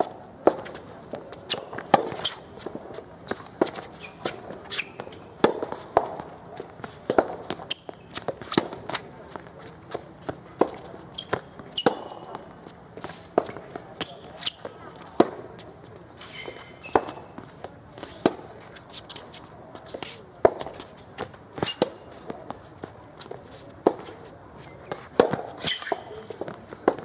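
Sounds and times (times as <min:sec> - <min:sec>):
rackets striking ball: 0:10.3 - 0:12.5.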